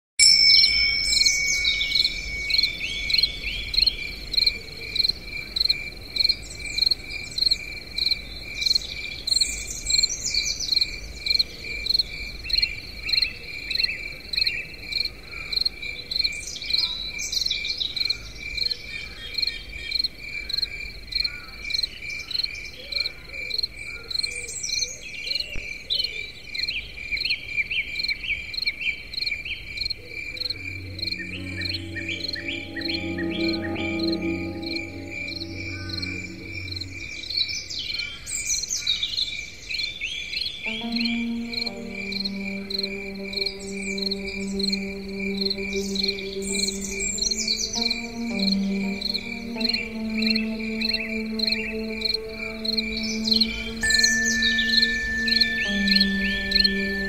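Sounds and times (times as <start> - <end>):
insect chirping: 0.2 - 10.1, 40.7 - 57.0.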